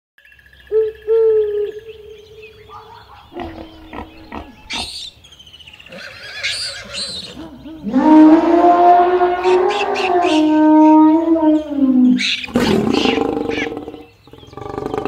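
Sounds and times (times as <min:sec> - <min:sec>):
pitched animal calls: 0:00.7 - 0:05.2, 0:05.9 - 0:15.0
rough noisy animal calls: 0:02.6 - 0:05.2, 0:05.8 - 0:15.0.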